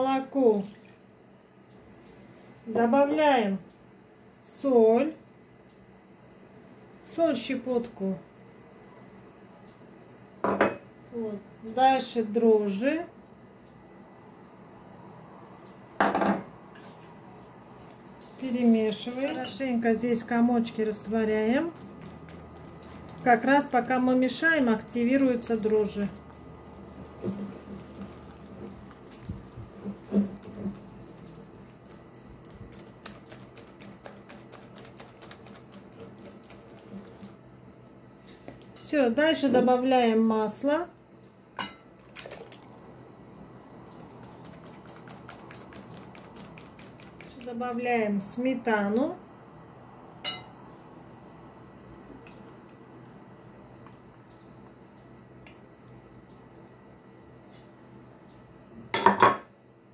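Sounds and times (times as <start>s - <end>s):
whisk clicking against glass bowl: 18.1s - 37.3s, 43.5s - 47.9s
whisk knocking on bowl: 18.2s - 37.3s, 43.5s - 47.9s
glass clinking: 50.2s - 50.5s.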